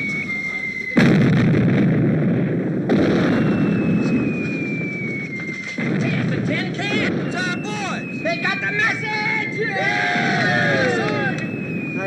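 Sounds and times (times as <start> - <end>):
incoming shell whistle falling: 0.0 - 1.9, 3.0 - 6.1, 6.7 - 12.0
artillery blasts with rumble: 0.9 - 8.2.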